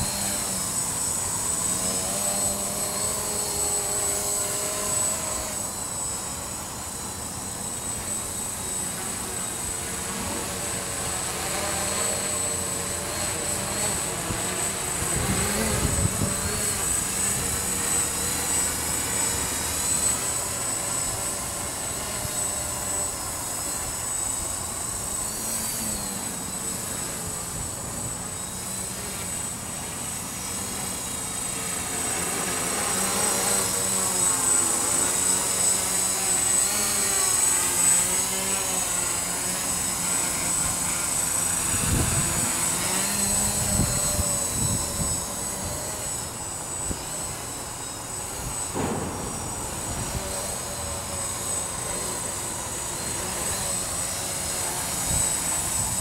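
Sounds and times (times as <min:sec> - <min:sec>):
quadcopter motors whining: 0:00.0 - 0:56.0
wind rumbling on microphone: 0:15.0 - 0:17.6, 0:41.7 - 0:45.4.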